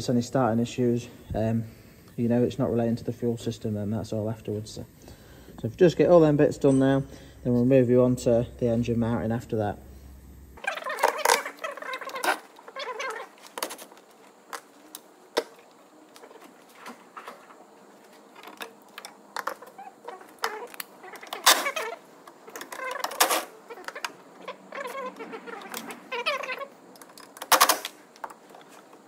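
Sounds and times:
plastic parts clicking and rattling: 0:10.6 - 0:24.2, 0:24.8 - 0:29.0.

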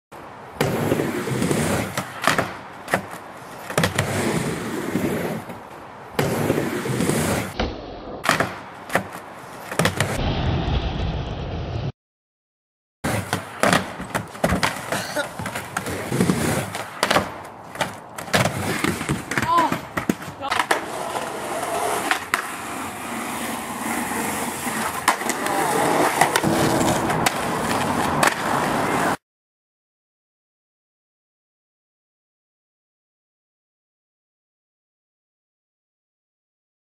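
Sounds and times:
skateboard wheels rolling on wood: 0:00.2 - 0:10.2, 0:13.0 - 0:29.2
skateboard clacking on ramp: 0:08.2 - 0:10.1, 0:13.2 - 0:22.5.

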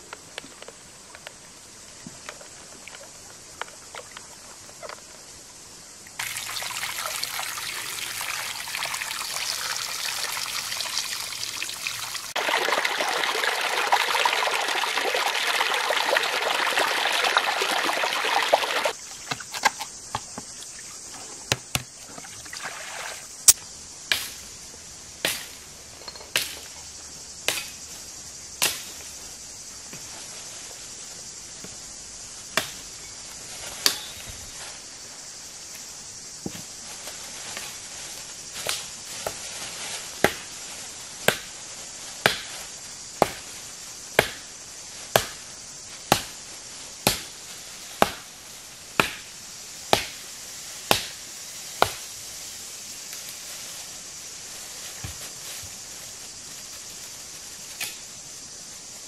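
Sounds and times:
water pouring from basin: 0:06.2 - 0:19.0, 0:22.0 - 0:23.5.

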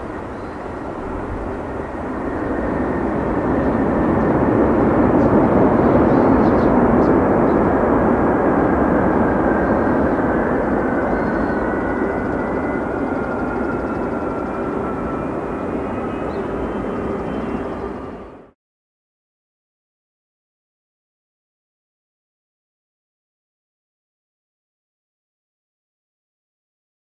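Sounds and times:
jet engines roaring: 0:00.0 - 0:18.5
falling engine whine: 0:00.0 - 0:18.6.

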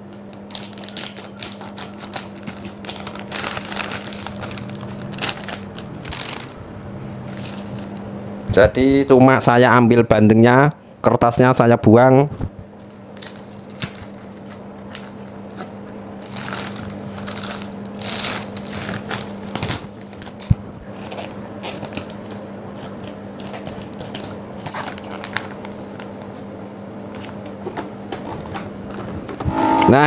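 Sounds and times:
low steady hum: 0:00.0 - 0:09.6, 0:29.0 - 0:30.0
plastic bag crinkling: 0:00.1 - 0:06.6, 0:12.8 - 0:26.3.

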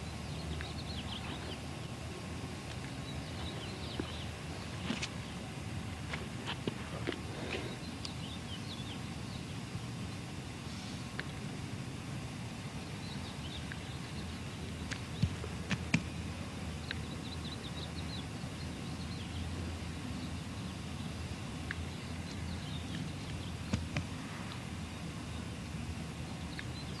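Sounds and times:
steady low rumble: 0:00.0 - 0:27.0.

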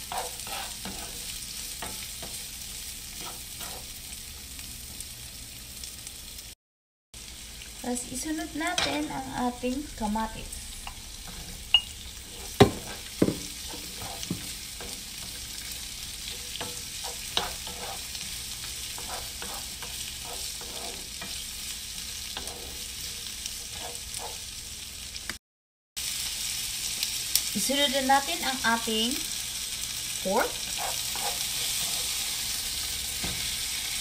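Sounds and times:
vegetables sizzling in oil: 0:00.0 - 0:06.6, 0:07.2 - 0:25.4, 0:26.0 - 0:34.0
wooden spoon knocking against pan: 0:12.6 - 0:13.6.

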